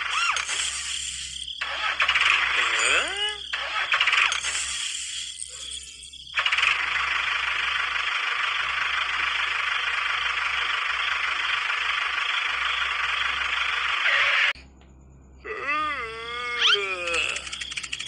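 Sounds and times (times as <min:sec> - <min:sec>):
toy tractor engine noise: 0:00.0 - 0:14.6, 0:16.4 - 0:18.0
wavering pitched call: 0:15.6 - 0:17.8.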